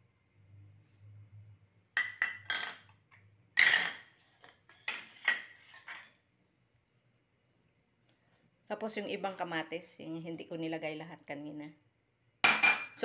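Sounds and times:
dishes and utensils clattering: 0:02.0 - 0:02.9, 0:03.6 - 0:06.2, 0:12.4 - 0:13.0.

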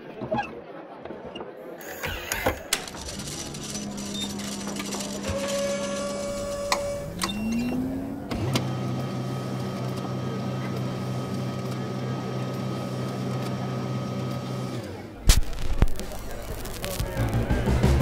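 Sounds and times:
record player motor hum: 0:01.8 - 0:17.6
whirr rising in pitch: 0:05.2 - 0:09.4.

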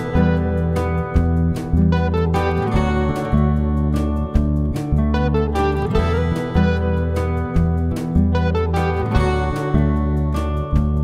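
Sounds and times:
bass line: 0:00.0 - 0:11.0
guitar music: 0:00.0 - 0:11.0.

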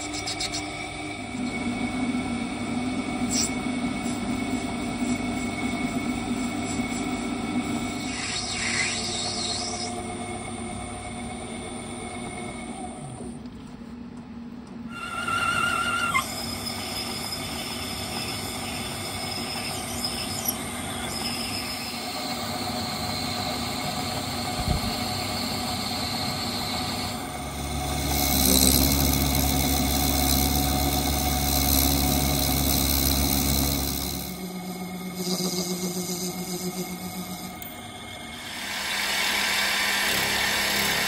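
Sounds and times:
metal lathe running: 0:15.0 - 0:41.0.

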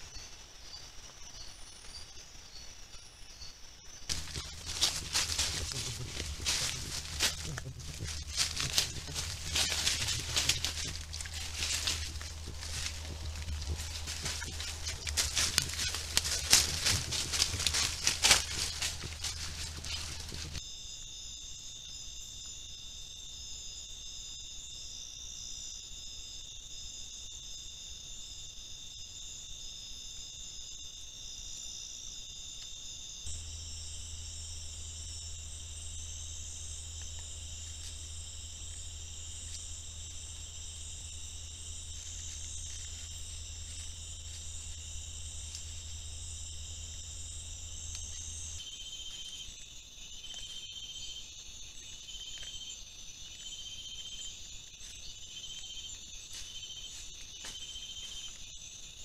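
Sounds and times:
insect chorus trilling: 0:00.0 - 0:59.0
low hum: 0:04.1 - 0:20.6, 0:33.3 - 0:49.5.

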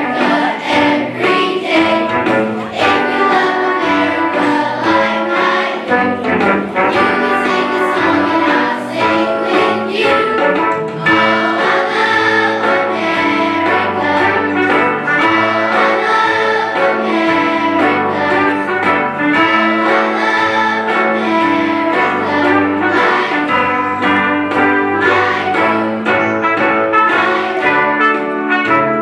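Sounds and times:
orchestral music with strings: 0:00.0 - 0:29.0.

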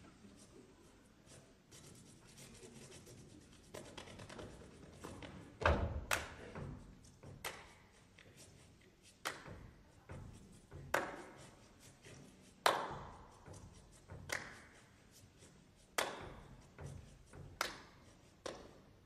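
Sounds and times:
sharp hand claps: 0:06.0 - 0:06.6, 0:07.2 - 0:08.0, 0:09.1 - 0:09.8, 0:10.8 - 0:11.4, 0:12.6 - 0:13.2, 0:14.1 - 0:14.8, 0:15.9 - 0:16.6, 0:17.3 - 0:19.0
thigh and body slaps: 0:14.3 - 0:14.7.

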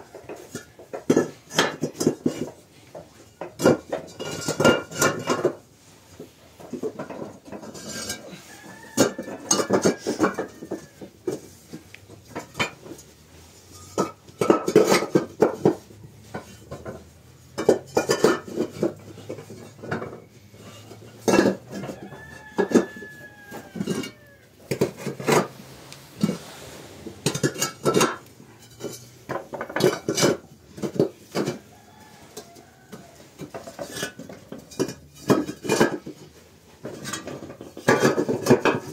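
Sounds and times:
clay bricks clinking and knocking: 0:06.6 - 0:31.8, 0:32.4 - 0:38.9.

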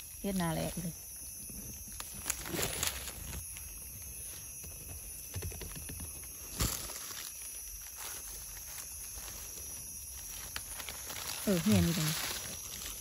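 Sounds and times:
leaf litter rustling and crackling: 0:01.9 - 0:04.4, 0:06.4 - 0:13.0.

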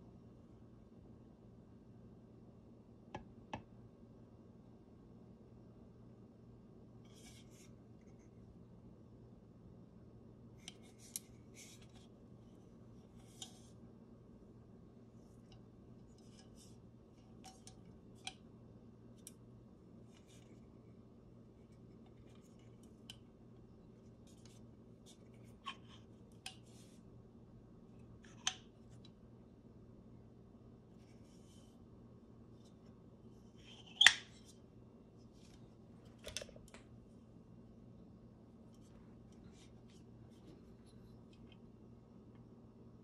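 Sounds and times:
faint low hum: 0:00.0 - 0:43.0
small metallic clicks and scrapes: 0:15.2 - 0:18.4.

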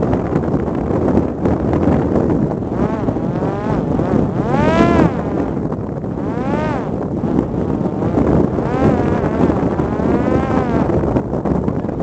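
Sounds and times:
wind noise on microphone: 0:00.0 - 0:12.0
drone motor whining: 0:02.5 - 0:11.2.

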